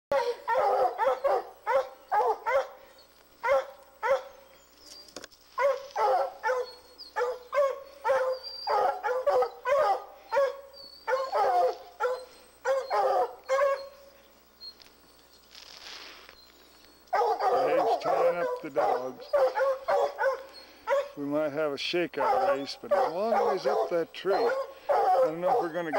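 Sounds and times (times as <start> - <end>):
hounds barking: 0.1 - 4.4, 5.5 - 14.2, 17.1 - 25.9.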